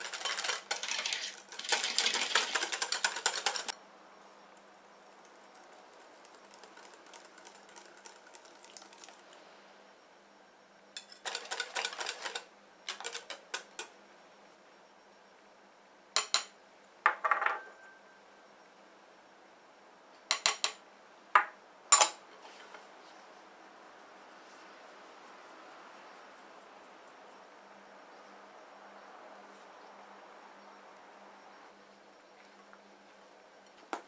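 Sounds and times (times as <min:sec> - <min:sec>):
wire whisk rattling against glass bowl: 0:00.0 - 0:03.7, 0:05.5 - 0:09.3, 0:11.0 - 0:13.9.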